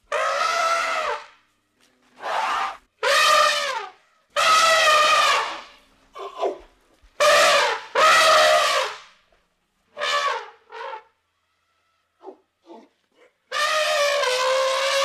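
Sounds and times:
elephant trumpeting: 0:00.1 - 0:01.2, 0:02.2 - 0:05.7.

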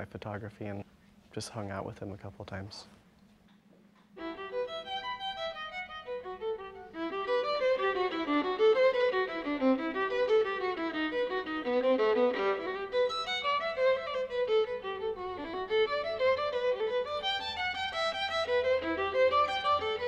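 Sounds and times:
quick stepping melody: 0:04.2 - 0:20.0.

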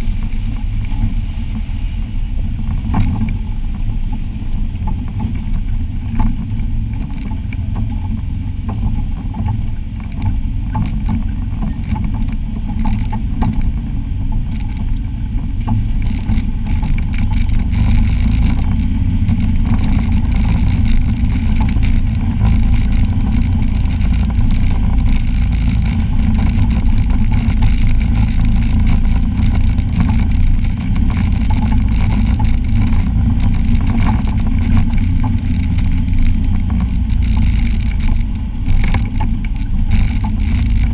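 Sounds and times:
utv engine low drone: 0:00.0 - 0:40.9
tyres crunching over stones: 0:16.0 - 0:40.9.

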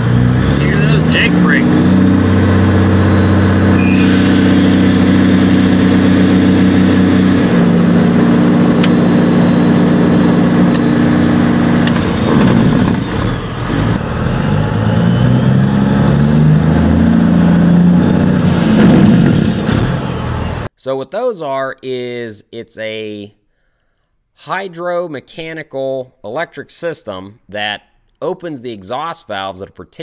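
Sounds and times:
diesel truck engine brake drone: 0:00.0 - 0:20.7.

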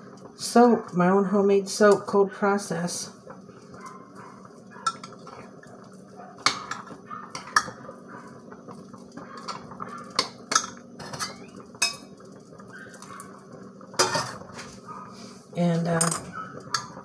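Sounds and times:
utensil clinking against a pot: 0:04.8 - 0:05.5, 0:06.4 - 0:07.9, 0:09.2 - 0:12.2, 0:14.0 - 0:14.5, 0:15.9 - 0:17.0.

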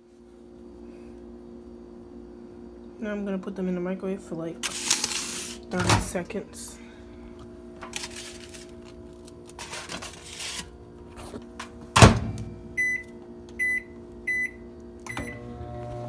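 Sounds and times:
paper plate handling: 0:07.9 - 0:11.5
microwave door shutting: 0:11.9 - 0:12.5.

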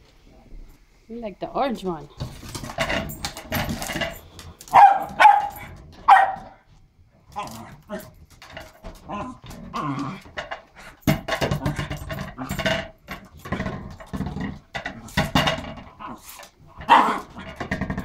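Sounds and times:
small dog growling: 0:09.1 - 0:11.0, 0:16.0 - 0:17.7.

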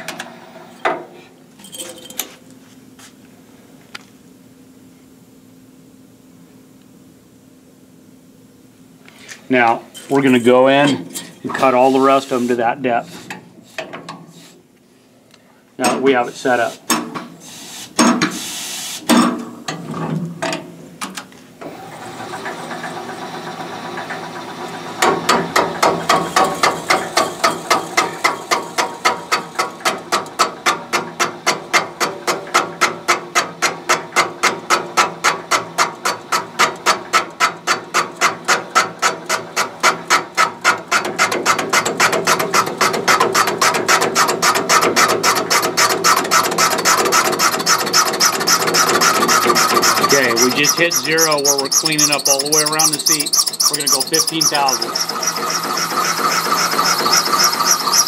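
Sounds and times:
metal clinks: 0:01.6 - 0:02.3
cutter scraping metal: 0:41.2 - 0:58.0.

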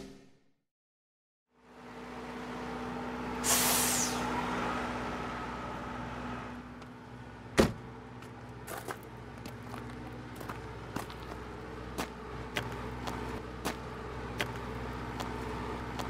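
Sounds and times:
vehicle idling: 0:01.5 - 0:16.0
short hiss: 0:03.4 - 0:04.2
door slamming: 0:07.6 - 0:07.8.

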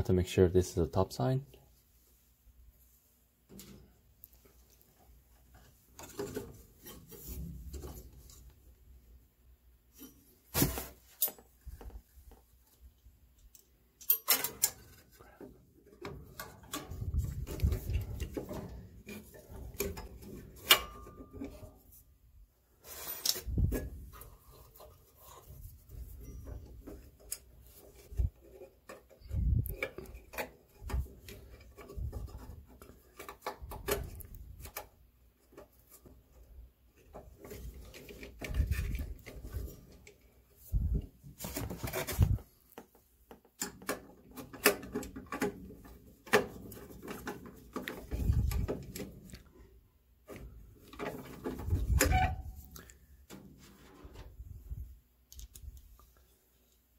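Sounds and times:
hands rubbing and scraping parts: 0:01.8 - 0:08.8, 0:09.9 - 0:56.9
clicks and knocks of parts: 0:13.3 - 0:21.7, 0:26.4 - 0:40.3, 0:41.4 - 0:49.5.

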